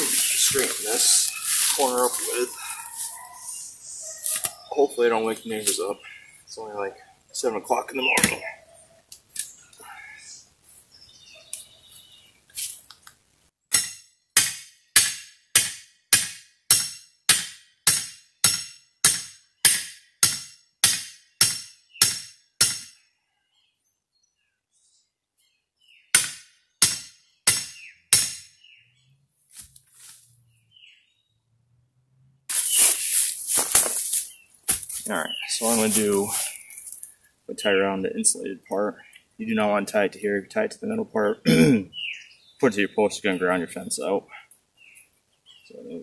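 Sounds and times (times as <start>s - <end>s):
loud rustle: 0.0s - 3.1s, 32.5s - 37.1s
hammer striking metal post: 13.7s - 23.0s, 26.2s - 28.5s.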